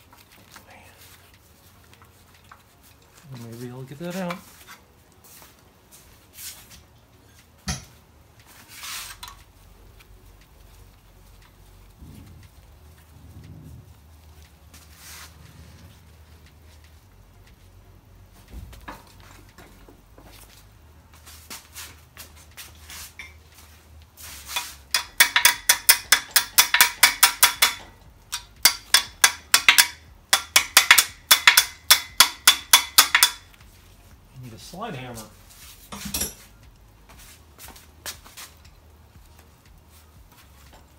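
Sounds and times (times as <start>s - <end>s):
sharp metal knock: 24.9s - 33.5s
hammer ringing on steel: 25.0s - 33.5s
metal tools clinking on metal: 35.9s - 36.6s.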